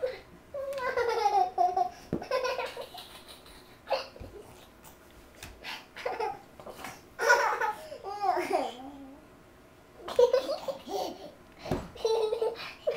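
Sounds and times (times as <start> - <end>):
baby giggling: 0.6 - 4.7, 6.0 - 9.1, 12.0 - 12.9.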